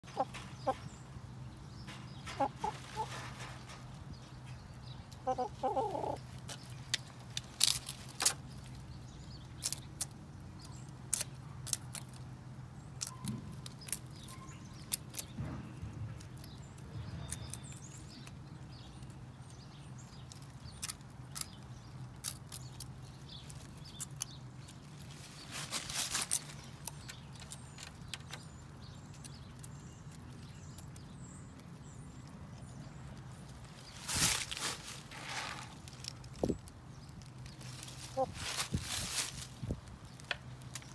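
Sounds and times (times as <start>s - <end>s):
scratchy rustle: 24.7s - 26.8s, 33.6s - 36.6s, 37.5s - 39.9s.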